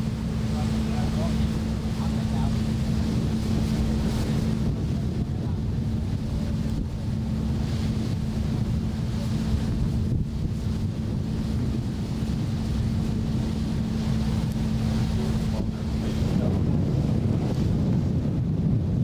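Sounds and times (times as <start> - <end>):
low engine hum: 0.0 - 19.0
water wash: 0.0 - 19.0
wind buffeting microphone: 0.0 - 19.0.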